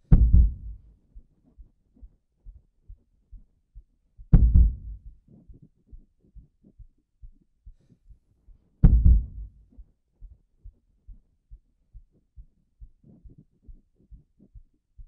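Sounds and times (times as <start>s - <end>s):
soft low thumps: 0.0s - 1.7s, 2.4s - 7.8s, 8.8s - 15.0s
deep booming hits: 0.1s - 0.8s, 4.4s - 5.0s, 8.8s - 9.6s.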